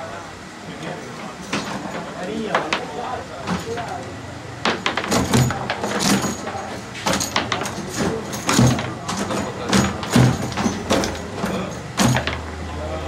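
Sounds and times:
foosball players striking ball: 1.5 - 12.7
metal rods sliding and rattling: 4.6 - 12.4.

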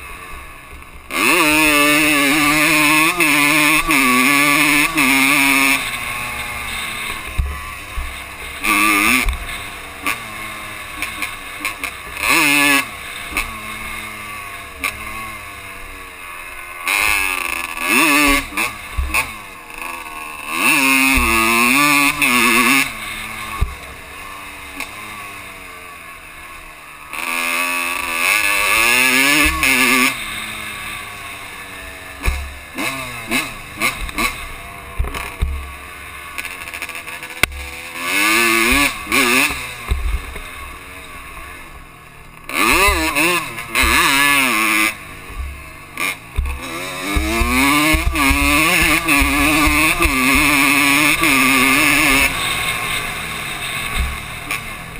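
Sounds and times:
dirt bike engine revving: 0.0 - 54.9
low knocks from rough trail: 18.9 - 19.4, 33.9 - 35.8, 39.8 - 40.5, 45.3 - 50.6.

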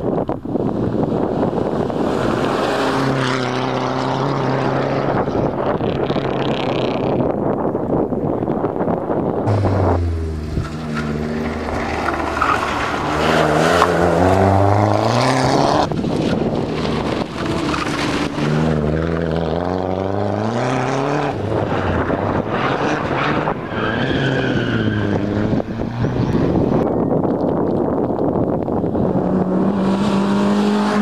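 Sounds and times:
rally car engine accelerating: 9.2 - 26.9, 28.3 - 31.0.

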